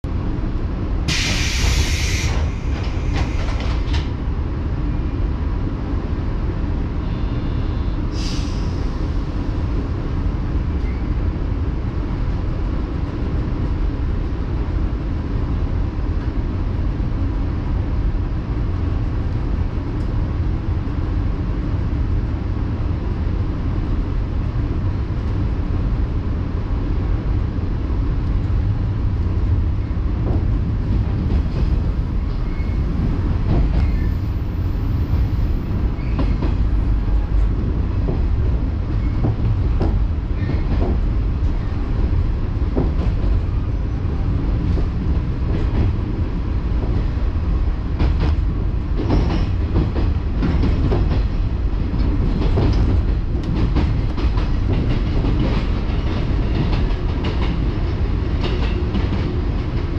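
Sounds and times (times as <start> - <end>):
train low rumble: 0.0 - 59.9
short hiss: 1.1 - 2.5.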